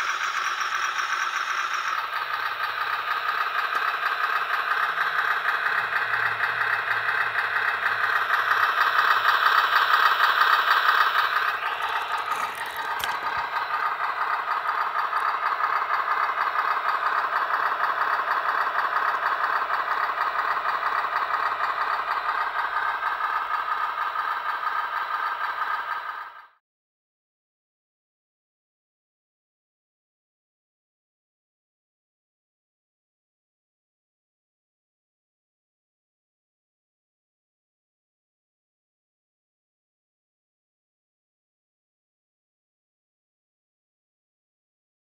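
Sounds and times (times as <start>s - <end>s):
simulated truck engine from loudspeaker: 0.0s - 26.6s.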